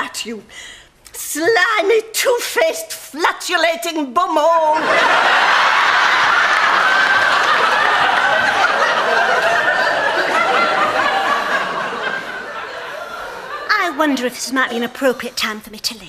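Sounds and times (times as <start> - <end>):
studio audience laughing: 4.8 - 13.7.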